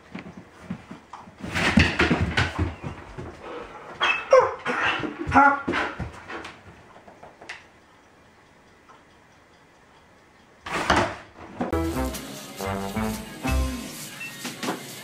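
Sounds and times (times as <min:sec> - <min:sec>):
dog whining and yelping: 0:04.0 - 0:05.0.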